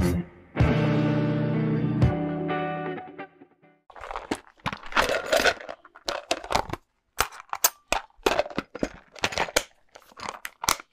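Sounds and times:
guitar music: 0:00.6 - 0:03.8
rustling: 0:03.9 - 0:10.9.

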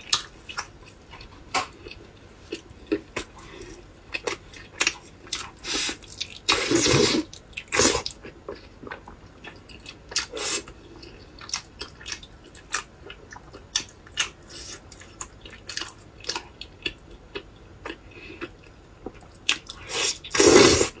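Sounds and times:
person chewing with mouth clicks: 0:00.1 - 0:20.9.

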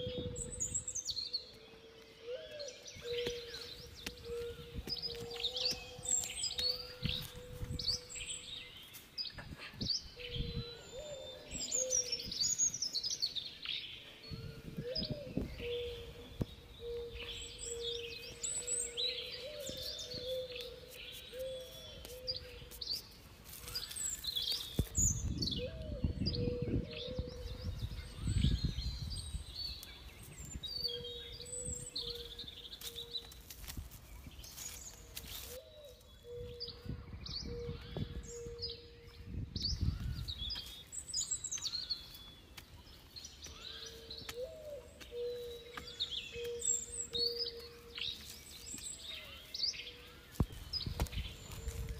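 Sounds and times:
birds chirping: 0:00.0 - 0:51.9
hands scraping soil: 0:18.4 - 0:25.2
digging stick in stony soil: 0:19.0 - 0:25.2, 0:32.7 - 0:35.7.

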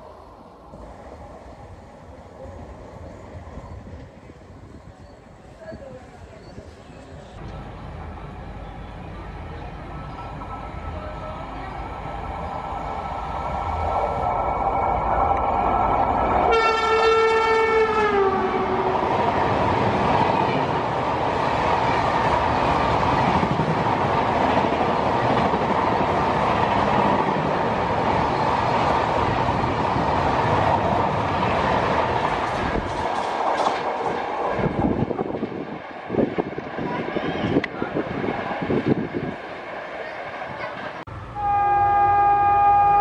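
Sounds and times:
passenger coaches rumbling past: 0:00.0 - 0:43.0
locomotive horn: 0:16.5 - 0:18.9, 0:41.3 - 0:43.0.

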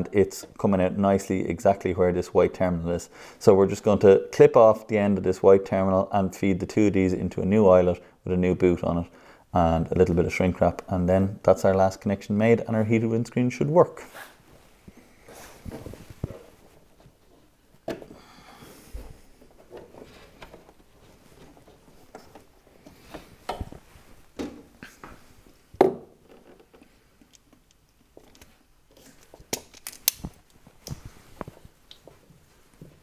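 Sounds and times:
wires rustling: 0:14.0 - 0:33.0
hand tool clicks and snips: 0:29.5 - 0:31.0.

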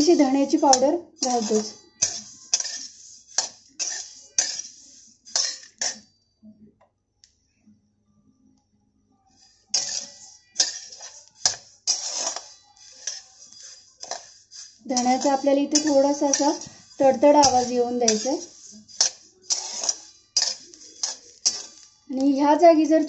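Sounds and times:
spatula scraping seeds in pan: 0:00.0 - 0:06.1, 0:09.4 - 0:23.0.

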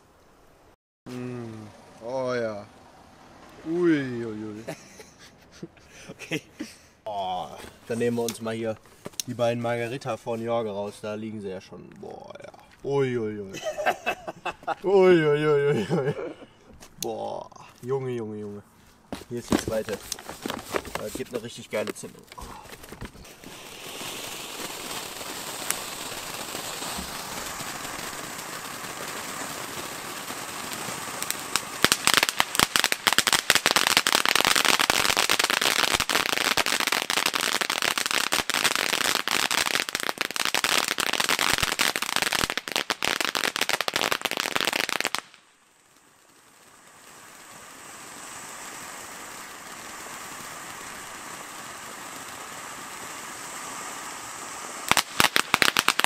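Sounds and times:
fountain firework hissing: 0:01.1 - 0:05.0, 0:13.2 - 0:16.4, 0:19.5 - 0:56.0
firework sparks crackling: 0:01.1 - 0:56.0.

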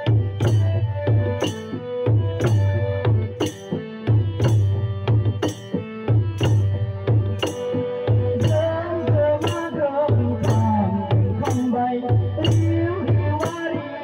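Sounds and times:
hand-struck barrel drum: 0:00.0 - 0:11.6
harmonium sustained notes: 0:00.0 - 0:14.0.

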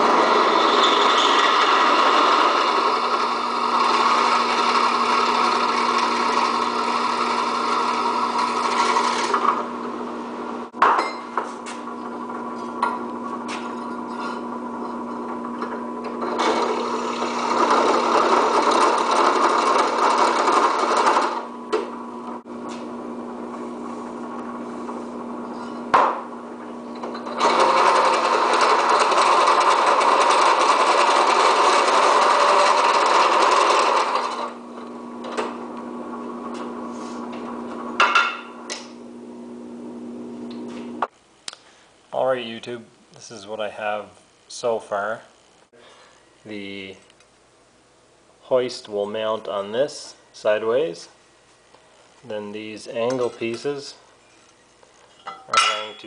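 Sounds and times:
drill bit cutting metal: 0:00.0 - 0:09.6, 0:16.2 - 0:21.5, 0:27.2 - 0:34.6
drill press motor humming: 0:00.0 - 0:10.6, 0:11.8 - 0:41.1.

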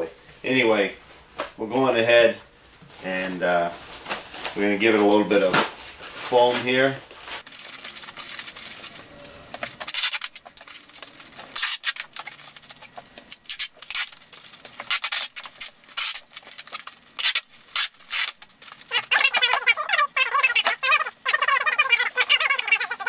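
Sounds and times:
foam sheet rustling and crinkling: 0:02.8 - 0:09.0
packing tape pulled off roll: 0:09.6 - 0:20.8.

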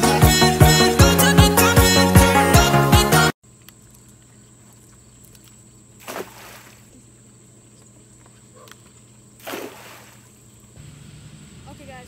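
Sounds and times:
high thin insect drone: 0:03.5 - 0:12.0.

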